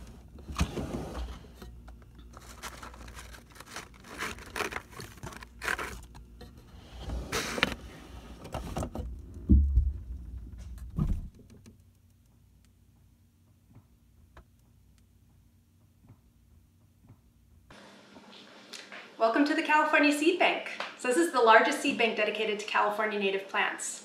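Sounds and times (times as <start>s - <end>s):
seed pouches rustling and crinkling: 2.0s - 6.4s
dull thumps: 8.9s - 11.6s.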